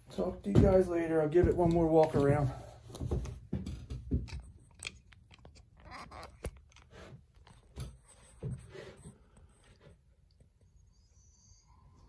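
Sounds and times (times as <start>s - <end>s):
footsteps: 0.0s - 4.5s
soft low thumps: 0.2s - 4.3s.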